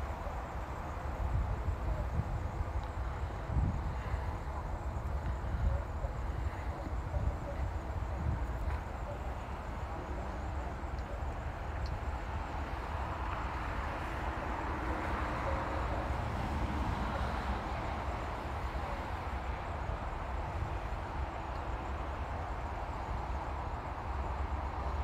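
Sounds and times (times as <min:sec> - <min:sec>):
wind buffeting microphone: 0:00.0 - 0:15.0
street traffic hiss: 0:00.0 - 0:25.0.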